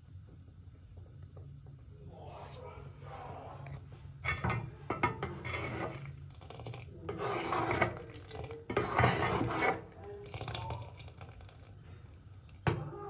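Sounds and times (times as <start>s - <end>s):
ladle scraping a steel pot: 4.2s - 11.5s.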